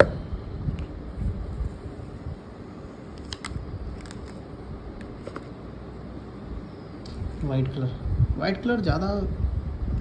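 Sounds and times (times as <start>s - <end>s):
paper packaging rustling: 3.1s - 4.4s.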